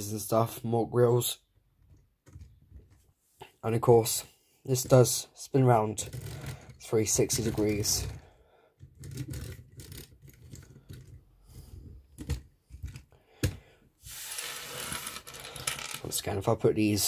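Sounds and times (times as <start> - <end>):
plastic toy clicks and rattles: 8.9 - 11.2
hand sliding across wooden desk: 14.0 - 15.2.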